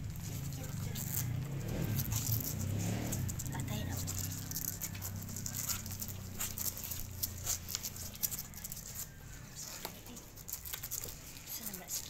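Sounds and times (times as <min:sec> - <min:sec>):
puppies suckling: 0:00.0 - 0:12.0.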